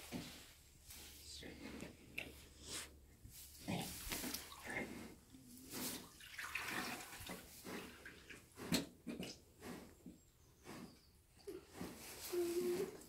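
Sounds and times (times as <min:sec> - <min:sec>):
wet squelching: 0:05.7 - 0:08.4.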